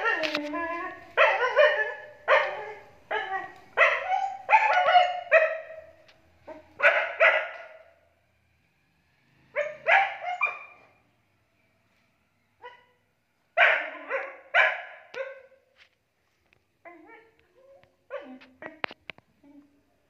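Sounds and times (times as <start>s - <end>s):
dog barking: 1.2s - 8.0s, 9.6s - 11.0s, 12.6s - 13.0s, 13.6s - 15.7s, 18.1s - 18.8s.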